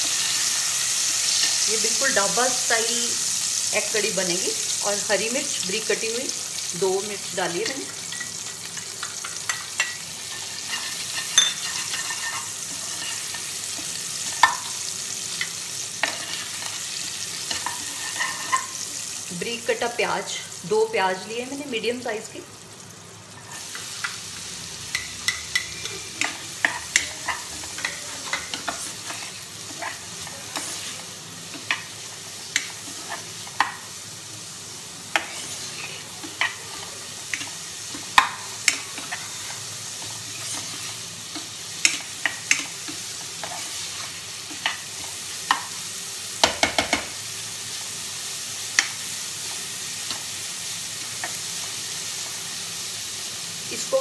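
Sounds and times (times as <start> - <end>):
onions sizzling in oil: 0.0 - 54.0
spoon scraping pan: 7.6 - 14.8, 15.4 - 18.8, 24.9 - 33.9, 35.1 - 45.7.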